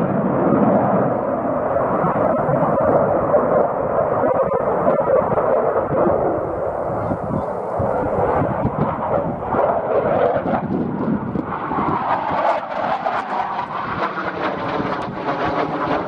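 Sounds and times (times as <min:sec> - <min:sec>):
jet passing overhead: 0:00.0 - 0:16.0.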